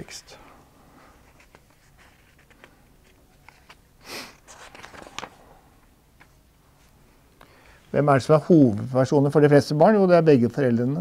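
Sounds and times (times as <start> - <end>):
paper rustling: 1.0 - 5.6
page-turn swish: 4.4 - 5.4.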